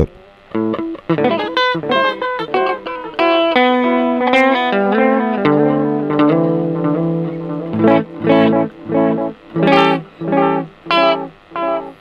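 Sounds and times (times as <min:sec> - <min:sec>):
electric guitar with delay repeats: 0:00.0 - 0:12.0.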